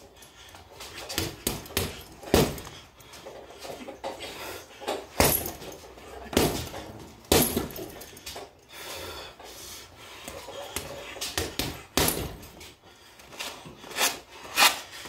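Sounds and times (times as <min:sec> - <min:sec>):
gloves thudding into punch bag: 0:01.1 - 0:02.7, 0:06.3 - 0:07.9, 0:11.3 - 0:12.5.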